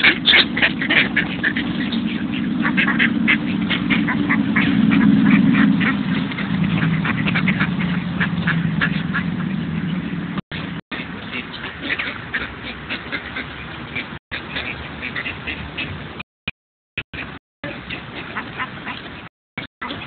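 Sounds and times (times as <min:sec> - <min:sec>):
low rumble: 0:00.0 - 0:10.8
ducks quacking: 0:00.0 - 0:16.2, 0:17.2 - 0:20.0.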